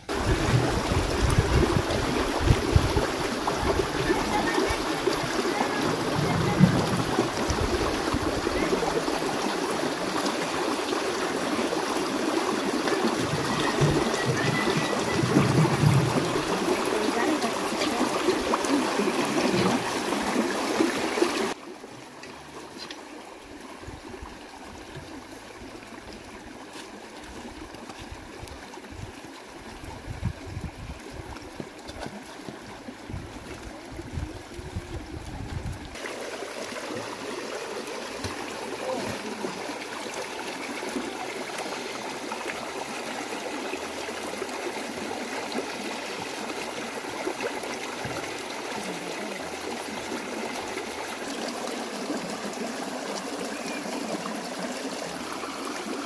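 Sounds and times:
stream trickling over stones: 0:00.0 - 0:56.0.

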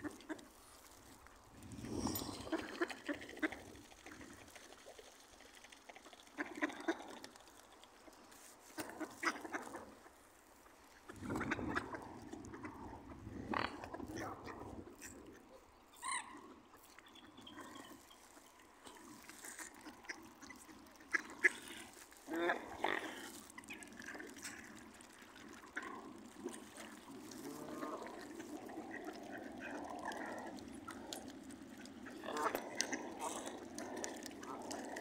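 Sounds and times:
ducks quacking: 0:08.8 - 0:10.1, 0:11.1 - 0:12.8, 0:18.9 - 0:24.4, 0:31.8 - 0:35.0.

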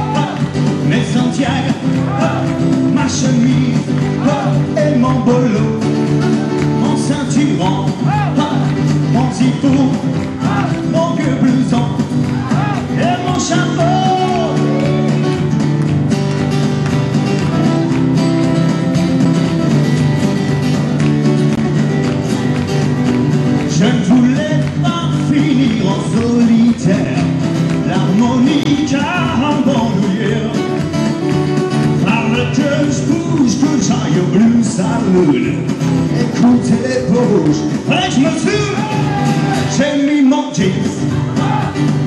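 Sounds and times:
man singing: 0:00.0 - 0:15.5, 0:23.6 - 0:30.9, 0:31.9 - 0:42.0
guitar: 0:00.0 - 0:42.0.

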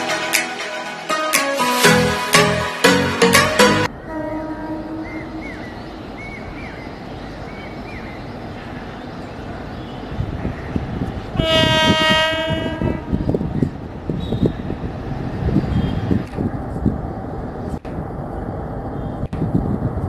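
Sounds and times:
train rumble: 0:03.3 - 0:20.0
train horn blast: 0:03.9 - 0:05.8, 0:11.4 - 0:13.4.

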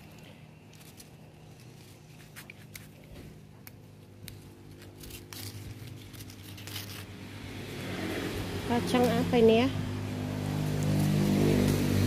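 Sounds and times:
bean pods snapping: 0:00.0 - 0:07.2
leafy crinkling: 0:00.0 - 0:07.5, 0:10.4 - 0:12.0.

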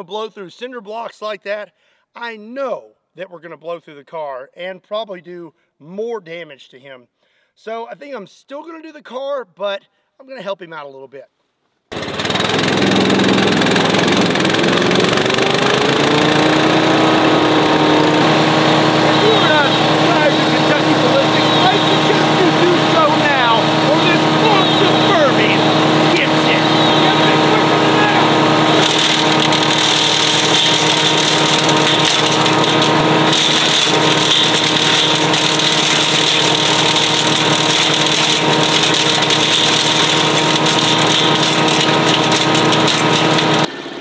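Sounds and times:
small engine revving: 0:11.9 - 0:44.0.

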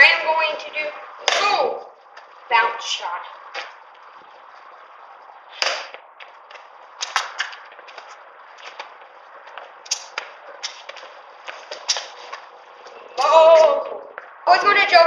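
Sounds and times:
balls slapping into hands: 0:01.2 - 0:01.6, 0:05.6 - 0:08.1.

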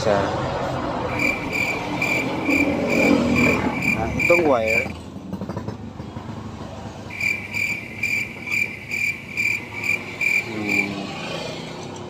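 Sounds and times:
rhythmic high-pitched chirping: 0:01.1 - 0:04.9, 0:07.1 - 0:10.9.

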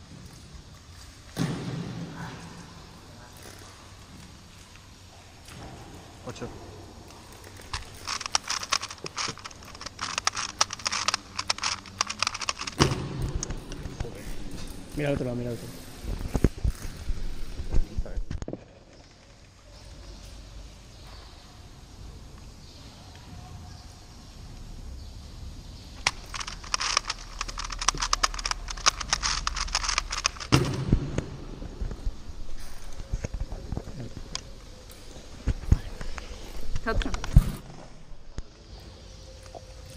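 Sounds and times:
rapid sharp puzzle clicks: 0:07.6 - 0:14.1, 0:26.0 - 0:30.8.

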